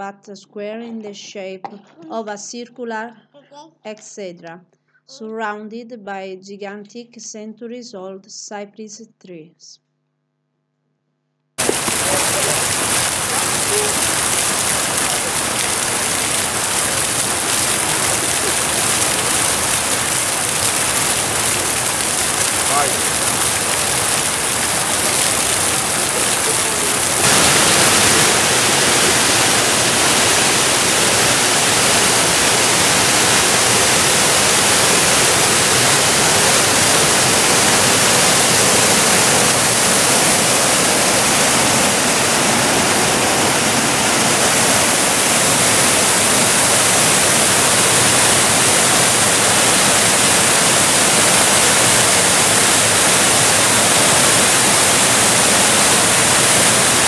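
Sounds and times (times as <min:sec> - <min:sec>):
fountain water rushing: 0:11.6 - 0:57.0.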